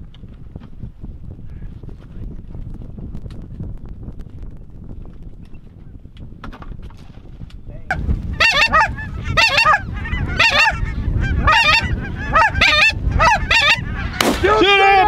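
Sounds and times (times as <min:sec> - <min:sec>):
low wind rumble: 0:00.0 - 0:15.0
geese honking: 0:08.3 - 0:15.0.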